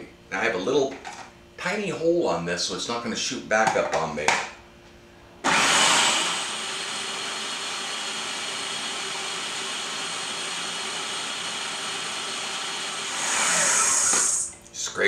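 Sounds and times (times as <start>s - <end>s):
food processor motor running: 5.4s - 14.6s.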